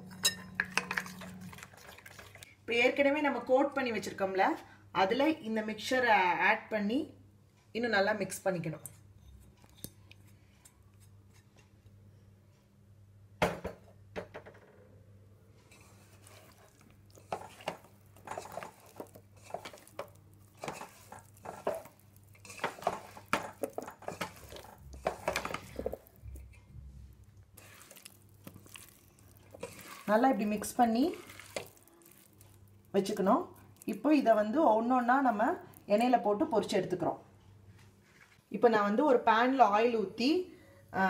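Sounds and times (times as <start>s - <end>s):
wet squishing in batter: 1.0s - 2.5s, 15.7s - 36.7s
scraping against metal bowl: 15.7s - 26.7s, 29.5s - 31.8s.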